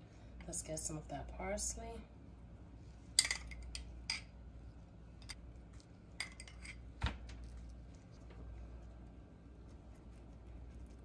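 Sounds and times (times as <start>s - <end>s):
metal spoon clinking glass bowl: 6.2s - 6.8s.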